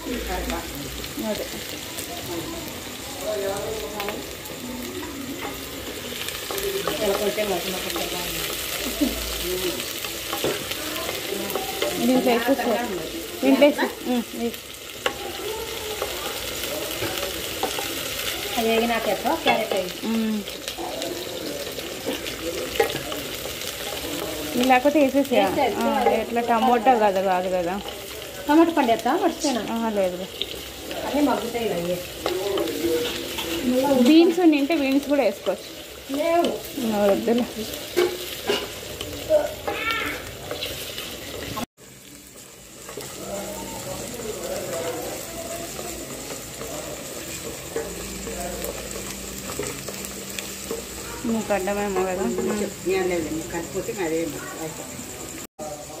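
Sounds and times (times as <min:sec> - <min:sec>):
onions sizzling in oil: 0:00.0 - 0:56.0
wooden spatula stirring in pan: 0:04.4 - 0:20.1, 0:20.7 - 0:41.7.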